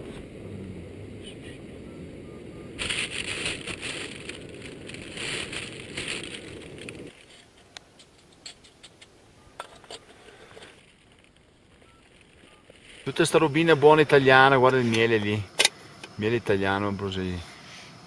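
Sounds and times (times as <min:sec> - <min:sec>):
rough rustling and buffeting: 0:02.7 - 0:17.2
faint clicks and crackles: 0:02.8 - 0:13.3.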